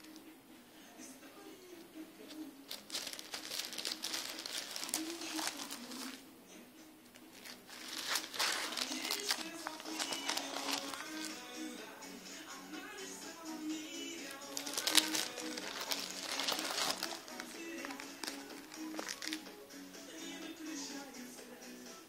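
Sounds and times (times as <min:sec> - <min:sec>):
plastic sheets crinkling: 0:02.3 - 0:06.2, 0:07.3 - 0:11.6, 0:14.2 - 0:19.5.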